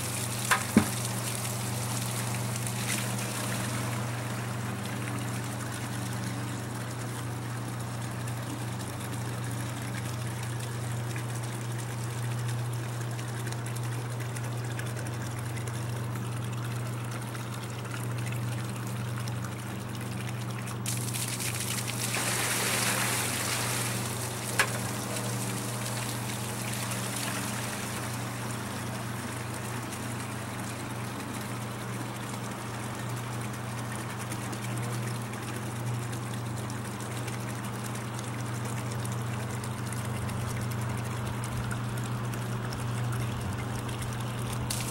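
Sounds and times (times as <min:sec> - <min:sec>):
water pouring into plastic bucket: 0:00.0 - 0:07.0, 0:20.0 - 0:30.7, 0:36.0 - 0:44.9
low pump hum: 0:00.0 - 0:44.9.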